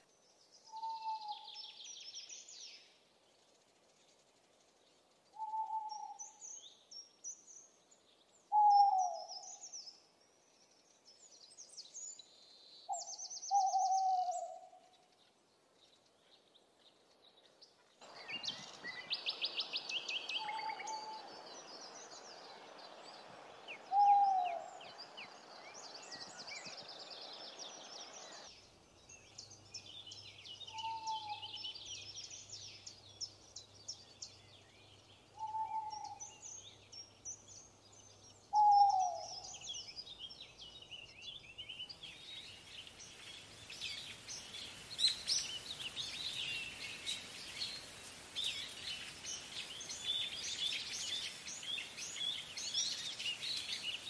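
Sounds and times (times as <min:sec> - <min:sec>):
songbirds chirping: 0:00.0 - 0:54.0
owl hooting: 0:20.4 - 0:21.2, 0:23.9 - 0:24.7, 0:30.7 - 0:31.6, 0:35.4 - 0:36.2.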